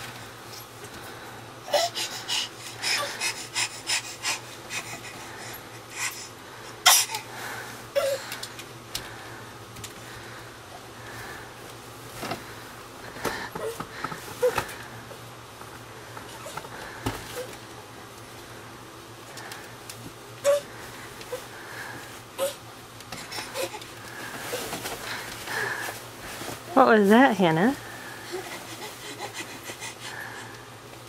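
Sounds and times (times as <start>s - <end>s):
child breathing effortfully: 0.9s - 11.6s, 12.3s - 15.1s, 20.4s - 26.6s, 27.8s - 30.8s.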